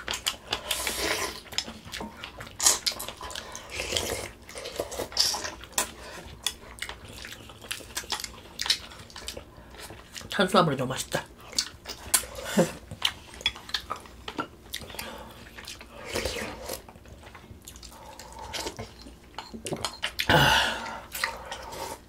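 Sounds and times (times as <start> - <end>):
slurping and chewing: 0.0 - 10.4, 11.4 - 22.0.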